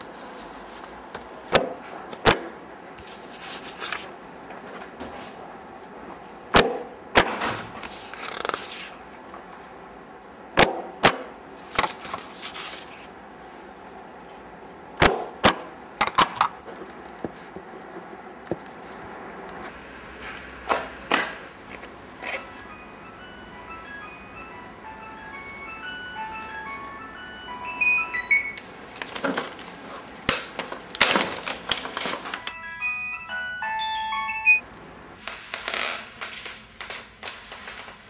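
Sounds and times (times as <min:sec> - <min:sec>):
paper rustling: 0:00.0 - 0:01.0, 0:03.0 - 0:05.4, 0:07.8 - 0:09.2, 0:11.6 - 0:13.1, 0:30.6 - 0:32.6.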